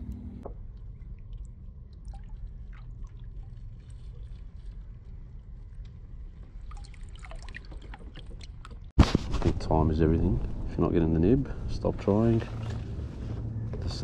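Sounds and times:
small drips and ticks: 0.5 - 8.9
water trickling and dripping: 0.6 - 8.9
low rumble: 9.4 - 14.0.

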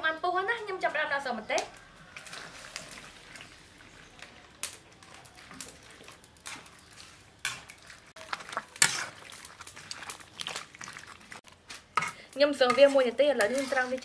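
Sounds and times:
peppers stirred in hot liquid: 1.6 - 14.0
metal tongs clinking on a wok: 12.0 - 14.0.

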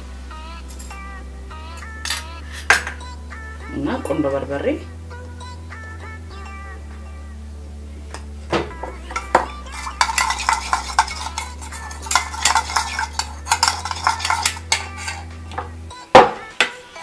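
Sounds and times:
metal spoon clinking in a bowl: 2.0 - 3.0, 9.2 - 15.3.

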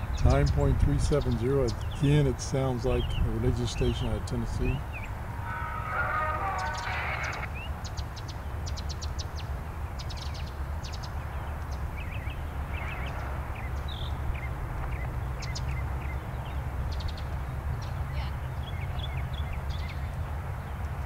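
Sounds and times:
birds chirping: 0.0 - 21.0
radio static hissing: 4.5 - 7.7.

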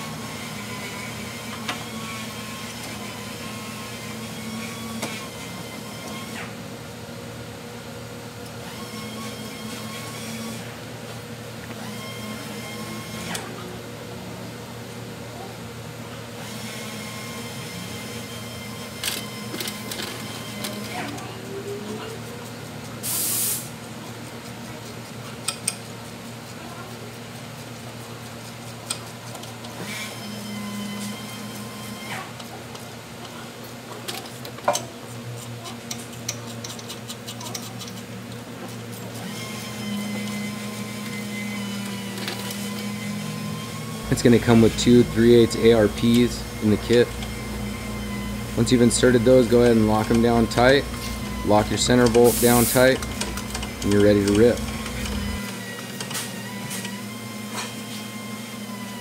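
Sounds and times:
steady mechanical hum: 0.0 - 59.0
ratchet clicking: 35.9 - 38.0, 48.9 - 56.1.

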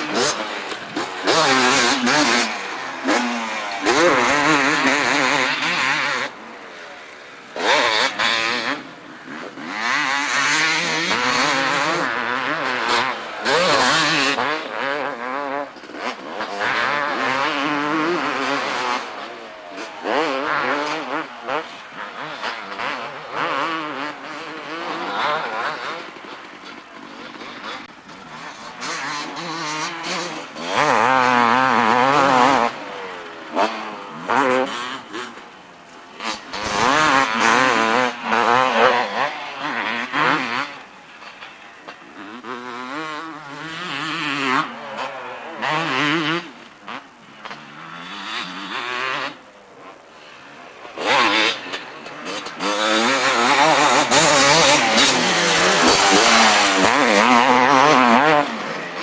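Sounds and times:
motocross bikes revving: 0.0 - 59.0.

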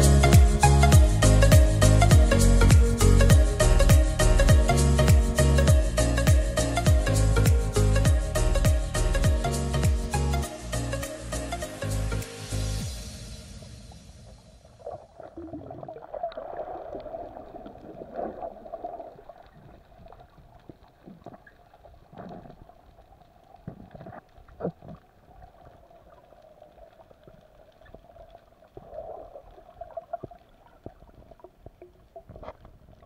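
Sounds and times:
underwater air bubbles gurgling: 14.3 - 33.0.

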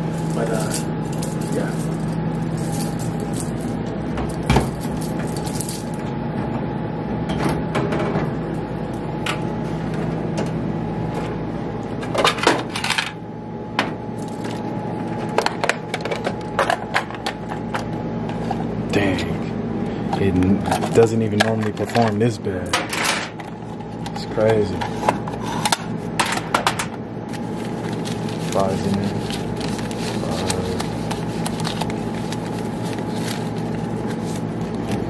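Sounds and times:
steady low hum: 0.0 - 35.0
coins clinking: 0.3 - 3.8, 4.6 - 6.0
vending machine mechanism clatter: 20.5 - 23.5.

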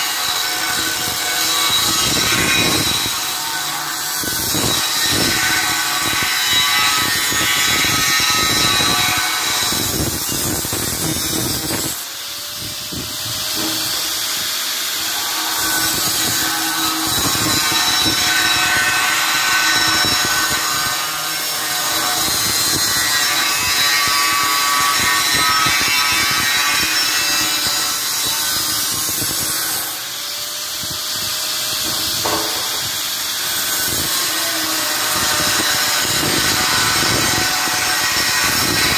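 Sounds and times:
angle grinder cutting steel: 0.0 - 38.9.

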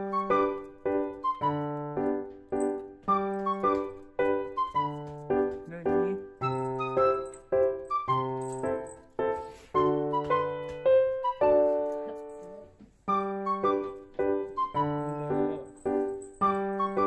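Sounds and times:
slow piano music: 0.0 - 17.0.

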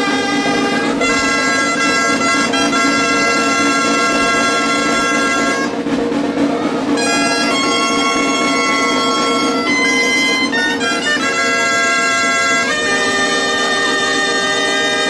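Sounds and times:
shrill reed pipes playing: 0.0 - 15.0.

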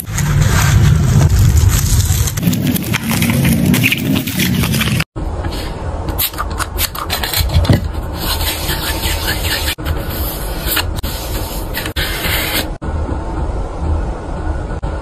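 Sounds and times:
plastic sleeves scraping: 0.0 - 5.1, 6.2 - 12.8.

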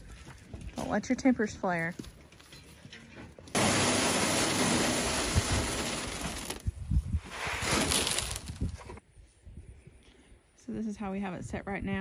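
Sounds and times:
feed pellets pouring into plastic hopper: 3.6 - 6.7, 7.6 - 8.6.

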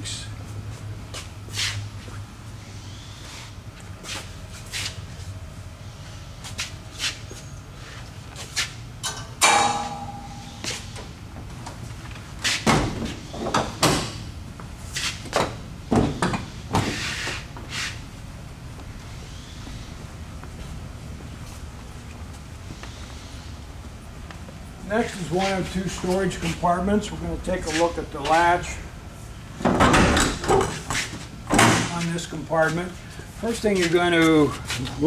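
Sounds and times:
metallic clank: 9.0 - 10.8.

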